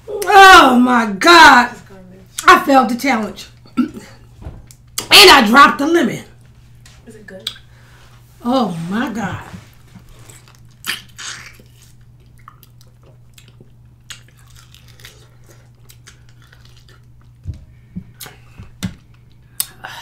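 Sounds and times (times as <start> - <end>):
low steady hum: 0.0 - 20.0
wet mouth clicks and smacks: 7.4 - 7.6, 12.2 - 15.0, 19.6 - 19.8.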